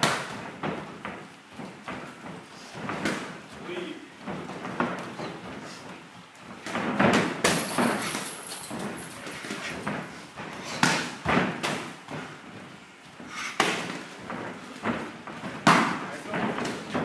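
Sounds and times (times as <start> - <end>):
gloved punches and kicks landing: 0.0 - 1.2, 6.6 - 8.0, 9.8 - 12.3, 13.5 - 17.0
feet shuffling on canvas: 0.7 - 6.9.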